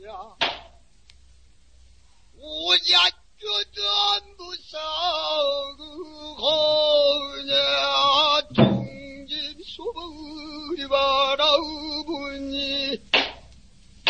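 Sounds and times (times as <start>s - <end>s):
person singing with vibrato: 2.4s - 13.1s
sharp drum stroke: 8.6s - 9.0s.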